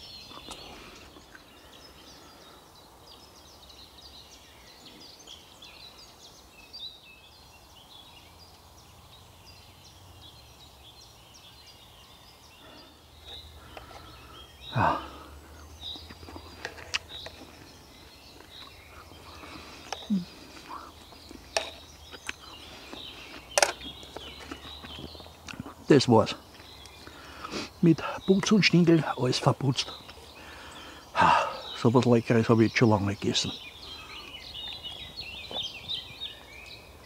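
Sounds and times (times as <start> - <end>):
birds chirping and singing: 0.0 - 37.0.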